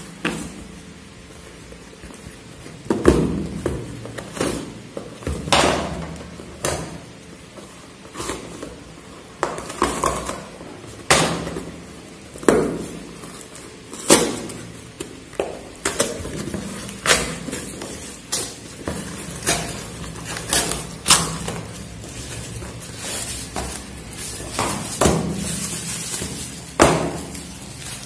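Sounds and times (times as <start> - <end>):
packing tape crackling: 12.1 - 28.0.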